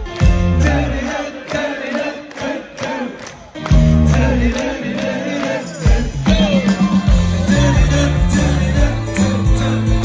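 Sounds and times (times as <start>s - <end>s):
live band through pa: 0.0s - 1.7s, 2.3s - 10.0s
lead singer: 0.0s - 10.0s
heavy bass: 3.7s - 4.5s, 6.2s - 10.0s.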